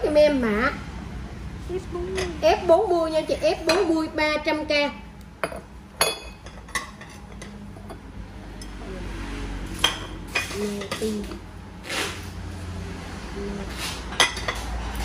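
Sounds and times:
ceramic plates clinking: 5.4 - 8.0.

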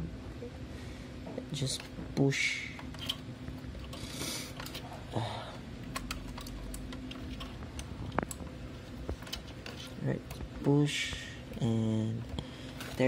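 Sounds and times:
soft rustling of cable: 2.8 - 13.0.

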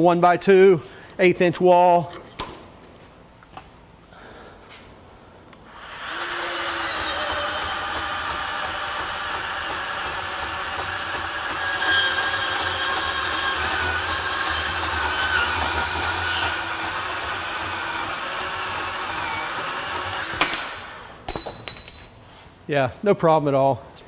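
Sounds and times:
band saw cutting metal tubing: 5.7 - 21.2.

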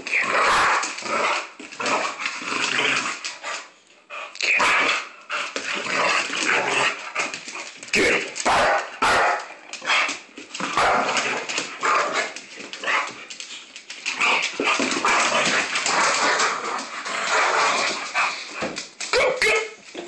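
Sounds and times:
dogs barking while play-fighting: 0.3 - 2.1, 6.3 - 13.2.

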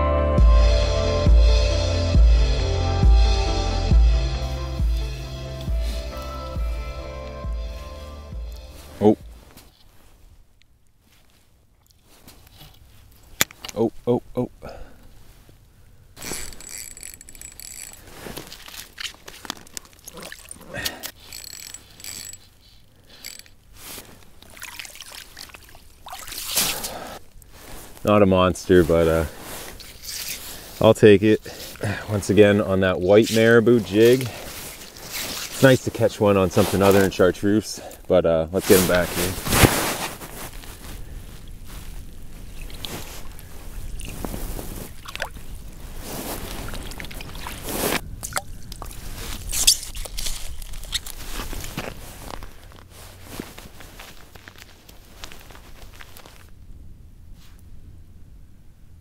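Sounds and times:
fishing rod and line clicking: 16.2 - 25.5, 48.2 - 51.2
fish scuffling on ice: 16.2 - 37.9, 38.6 - 56.5
hands splashing water: 18.4 - 21.0, 24.4 - 27.0, 44.8 - 45.5, 46.4 - 51.1.

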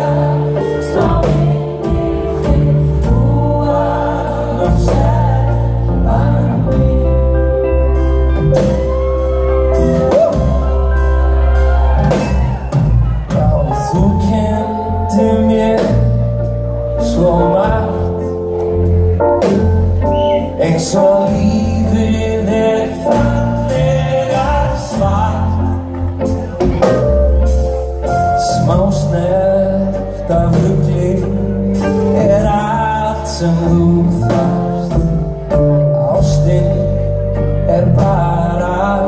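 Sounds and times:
steady drum beat: 0.0 - 7.0, 8.4 - 14.6
live rock band playing: 0.0 - 39.0
person singing: 0.0 - 39.0.

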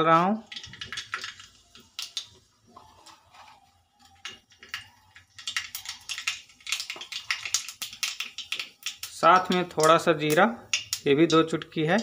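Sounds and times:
mustard seeds crackling in hot oil: 0.0 - 12.0.

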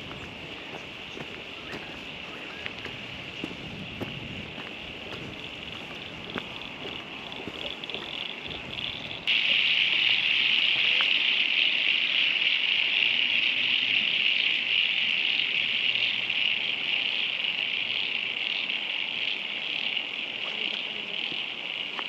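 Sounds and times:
chorus of frogs calling: 0.0 - 22.0.

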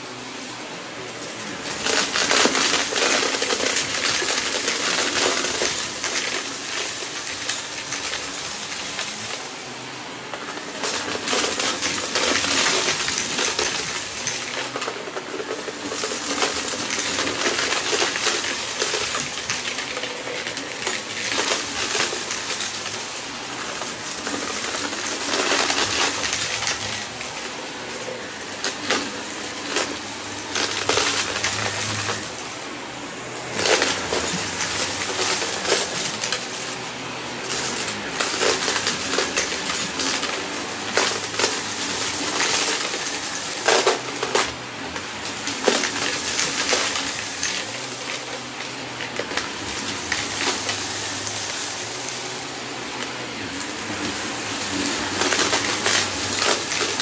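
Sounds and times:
vacuum cleaner motor humming: 0.0 - 57.0
debris crackling and rattling: 1.0 - 57.0.

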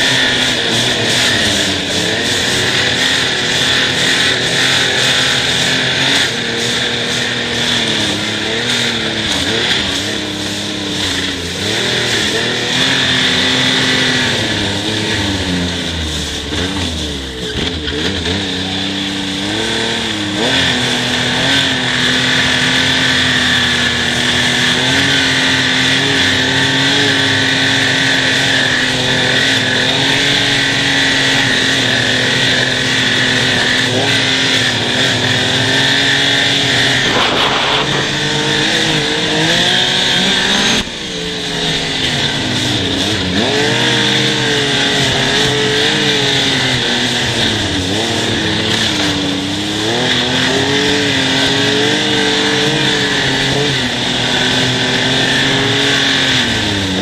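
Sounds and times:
snowmobile engine running: 0.0 - 57.0.

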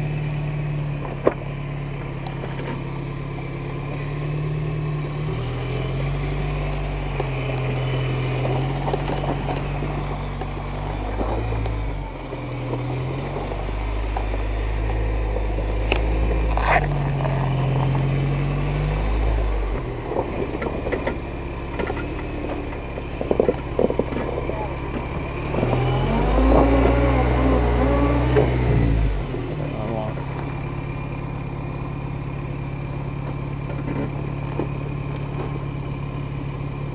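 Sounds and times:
pickup engine at low revs: 0.0 - 36.9.

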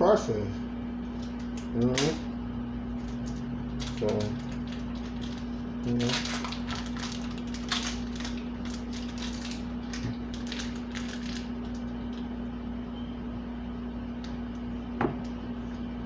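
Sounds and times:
appliance hum: 0.0 - 16.0
plastic packaging crinkling: 3.0 - 12.4.

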